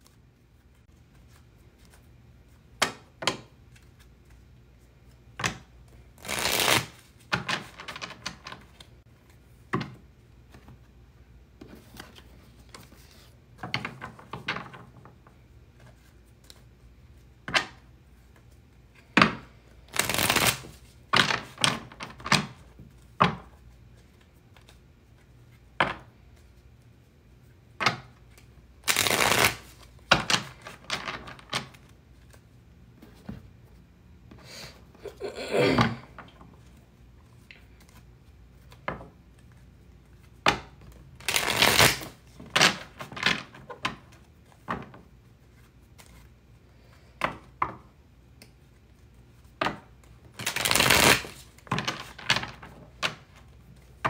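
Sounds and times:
cards rustling while shuffled: 3.6 - 9.4, 19.7 - 27.1, 28.2 - 33.4, 36.5 - 47.2, 48.4 - 54.0
cards slapping and clicking: 5.1 - 8.9, 19.2 - 23.4, 27.8 - 32.4, 38.6 - 45.0, 49.5 - 54.0.

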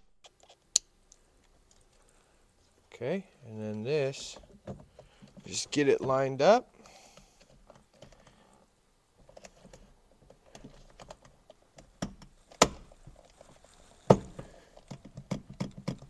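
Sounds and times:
plastic rubbing: 9.2 - 16.0.

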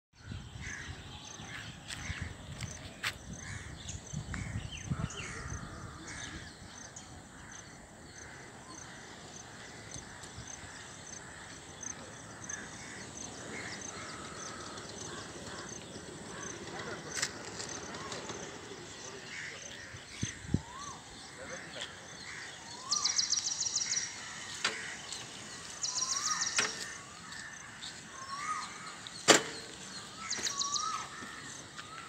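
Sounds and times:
wind rumble on microphone: 0.2 - 6.7, 19.9 - 21.0
birds calling: 0.2 - 32.0.

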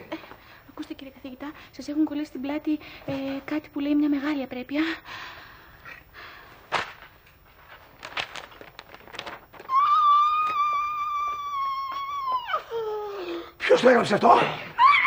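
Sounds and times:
paper rustling: 6.7 - 11.6
man shrieking: 9.7 - 12.7.

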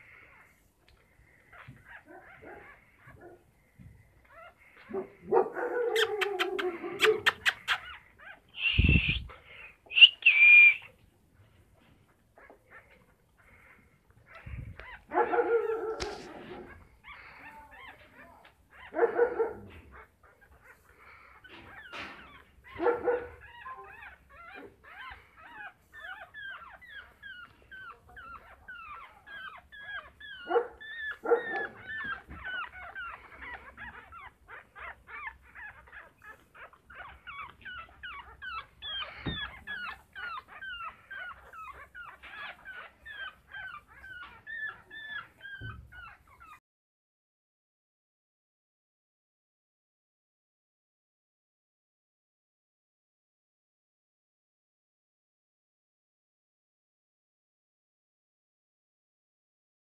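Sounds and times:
puppies crying and whimpering: 0.0 - 46.6
puppies yelping: 0.0 - 46.6.

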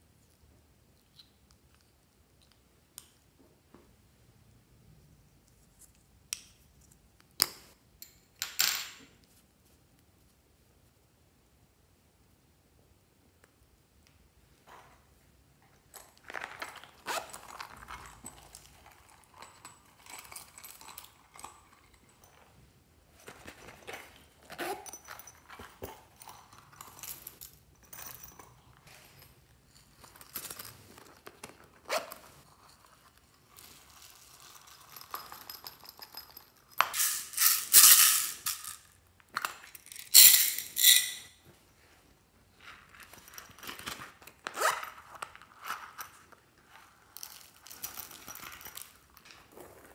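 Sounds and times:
crinkling: 15.8 - 22.5
foam beads rattling: 36.8 - 39.0, 39.8 - 41.3.

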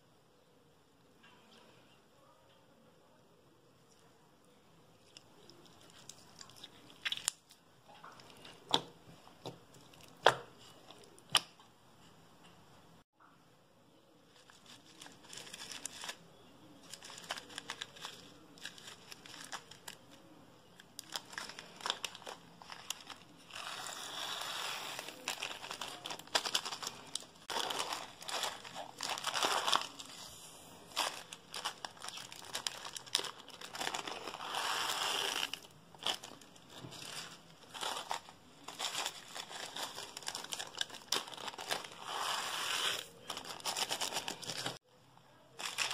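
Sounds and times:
plastic bag crinkling: 14.3 - 44.8, 45.6 - 45.9.

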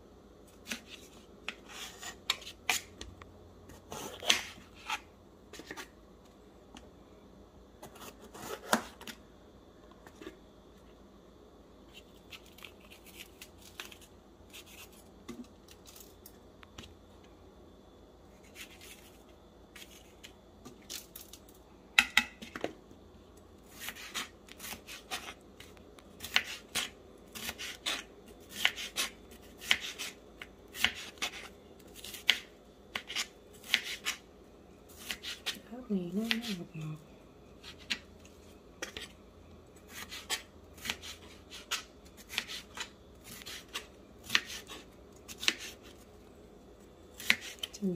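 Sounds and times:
food being cut with snips and clicks: 0.5 - 6.0, 23.7 - 34.2, 34.9 - 35.6, 39.8 - 46.1, 47.2 - 47.8.

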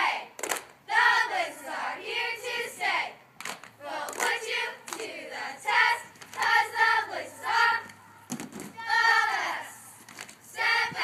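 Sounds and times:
girls chanting in unison: 0.0 - 3.2, 3.8 - 11.0
sharp claps: 0.4 - 0.8, 3.4 - 5.1.

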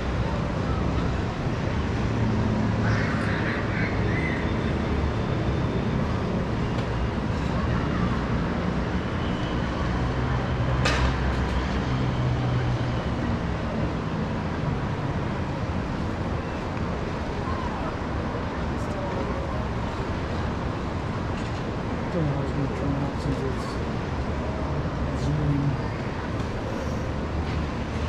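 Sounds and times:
road traffic hum: 0.0 - 28.0.

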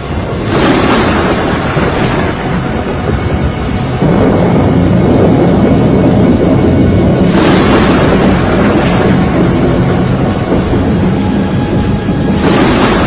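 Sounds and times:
low rumbling tornado wind: 0.0 - 13.0
rushing whoosh: 0.0 - 13.0.

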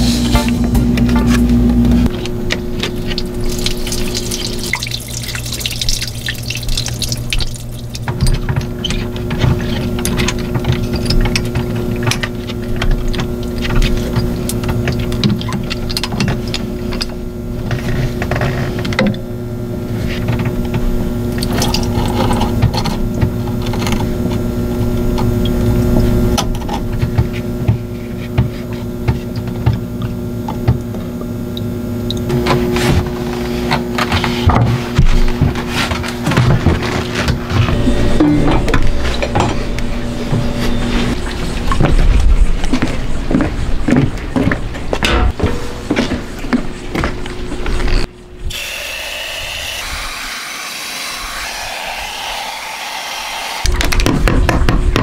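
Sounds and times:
electrical hum: 0.0 - 55.0
water sloshing and dripping: 2.1 - 17.1.

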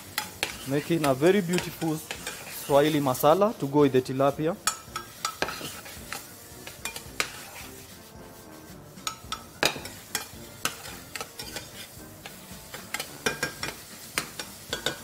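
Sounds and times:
vegetables sizzling in pan: 0.0 - 15.0
spoon clinking against pan: 0.1 - 2.6, 4.6 - 7.7, 9.0 - 15.0.

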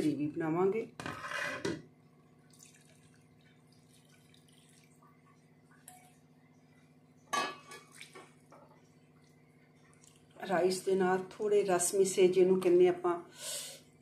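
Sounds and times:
low steady hum: 0.0 - 14.0
spatula scraping a pan: 1.0 - 1.7
water pouring into a pan: 2.4 - 6.3.

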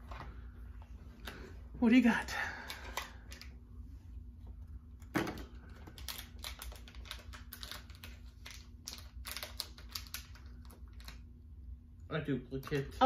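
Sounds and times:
packaging clicks and rustles: 5.4 - 11.2.

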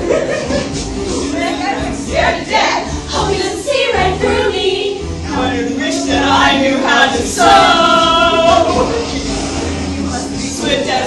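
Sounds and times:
pop song: 0.0 - 11.0
person singing: 5.3 - 9.5.

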